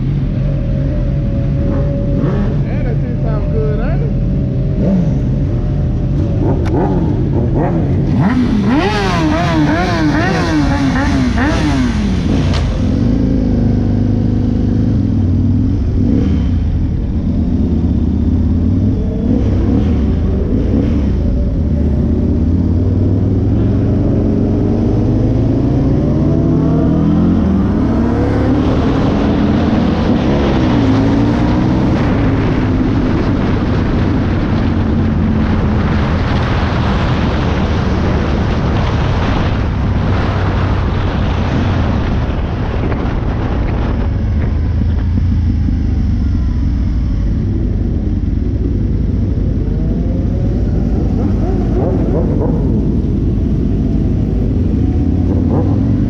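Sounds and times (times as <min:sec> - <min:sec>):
motorcycle engine accelerating: 0:00.0 - 0:56.0
wind rush over microphone: 0:00.0 - 0:56.0.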